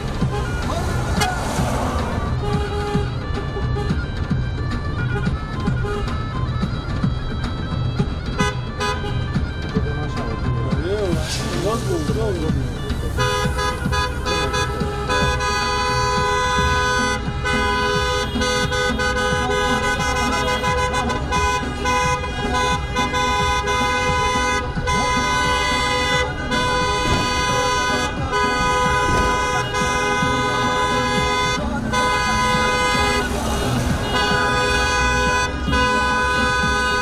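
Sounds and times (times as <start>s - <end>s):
engine and traffic noise: 0.0s - 37.0s
car horns honking together: 13.2s - 37.0s.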